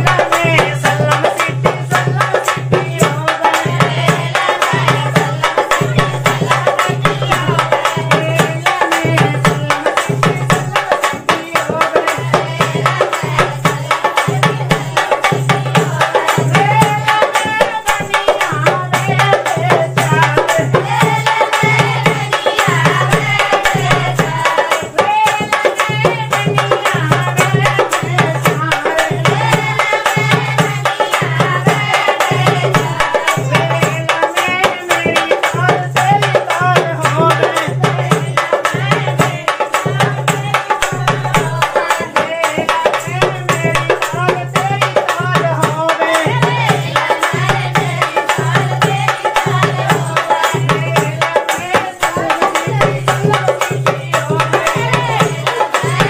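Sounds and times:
hand-drum percussion: 0:00.0 - 0:56.0
folk dance music: 0:26.8 - 0:56.0.

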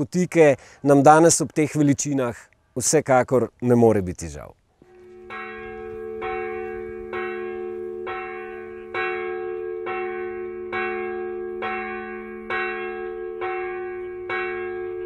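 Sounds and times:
church bell tolling: 0:04.9 - 0:15.0.

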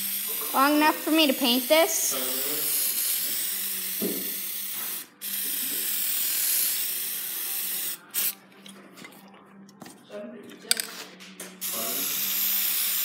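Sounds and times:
spray paint hissing: 0:00.0 - 0:08.4, 0:11.6 - 0:13.0.

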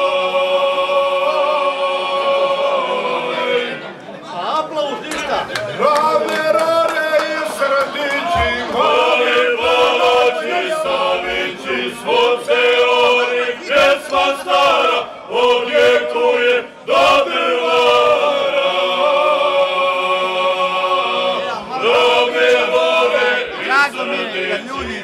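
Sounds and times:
group of men singing: 0:00.0 - 0:03.8, 0:05.8 - 0:25.0.

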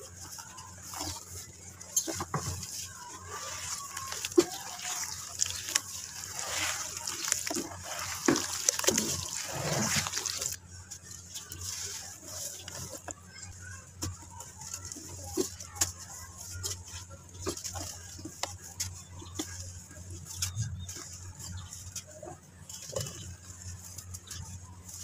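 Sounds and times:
water sloshing and splashing: 0:00.0 - 0:25.0
small splashes and drips: 0:03.2 - 0:10.6.

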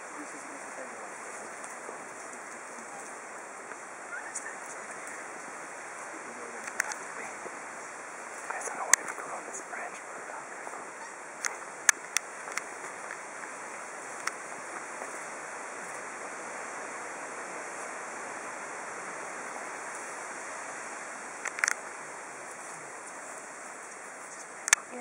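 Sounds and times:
forest background rushing noise: 0:00.0 - 0:25.0
sharp clicks: 0:06.6 - 0:07.0.

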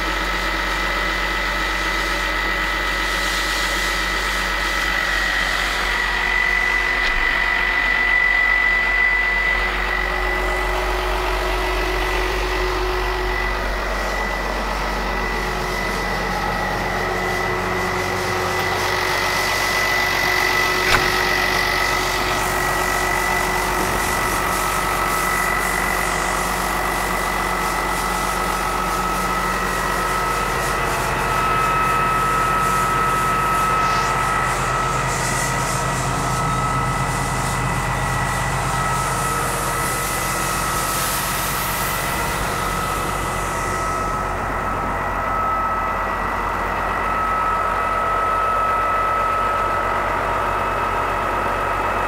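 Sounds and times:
tractor diesel engine idling: 0:00.0 - 0:52.0
sharp knock: 0:20.8 - 0:21.6.

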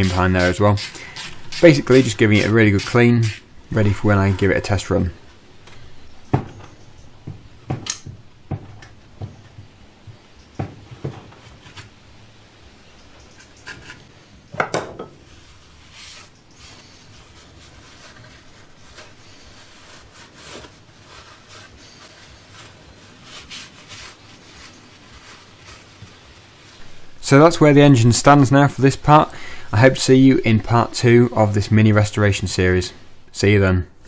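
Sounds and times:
cloth rubbing on metal: 0:00.0 - 0:05.2, 0:15.1 - 0:33.6
metal parts knocking on bench: 0:14.5 - 0:15.2.

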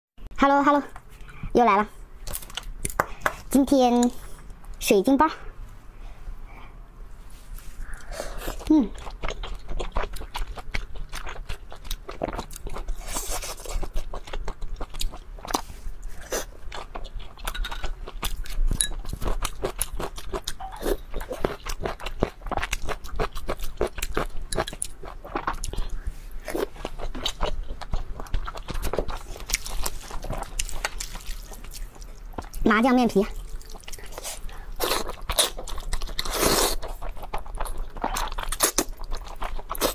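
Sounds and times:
biting and chewing: 0:08.5 - 0:32.6, 0:33.3 - 0:39.9.

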